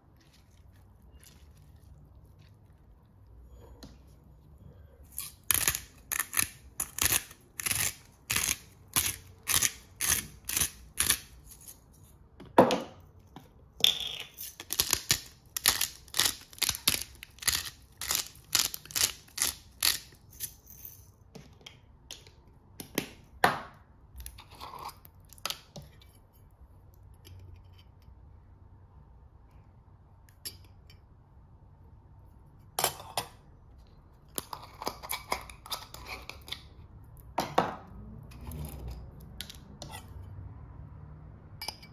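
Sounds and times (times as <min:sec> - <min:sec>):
spice grinders grinding: 0:05.1 - 0:11.9, 0:14.3 - 0:21.1.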